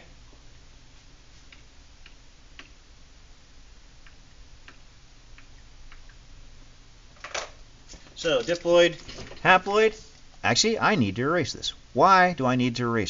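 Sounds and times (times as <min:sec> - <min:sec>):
low steady hum: 0:00.0 - 0:13.0.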